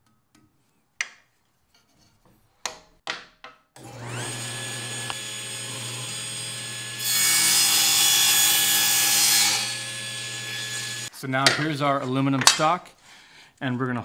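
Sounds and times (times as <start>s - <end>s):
saw blade cutting wood: 3.8s - 11.1s
table saw motor whine: 3.8s - 11.1s.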